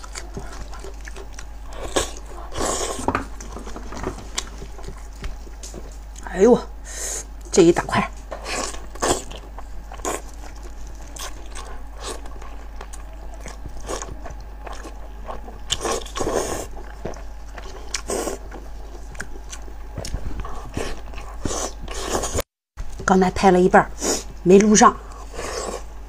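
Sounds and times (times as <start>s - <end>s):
wet chewing and mouth smacking: 0.0s - 6.2s, 8.3s - 22.4s.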